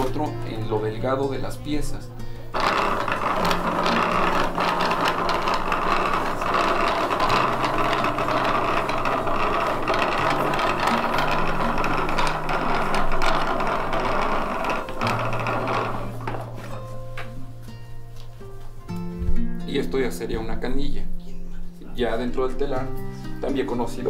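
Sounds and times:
wooden wheel clicking and knocking: 2.5 - 17.4.

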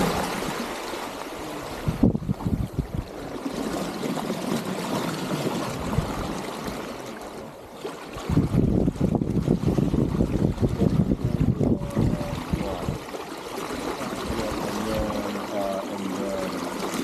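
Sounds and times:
water rushing along hull: 0.0 - 17.0.

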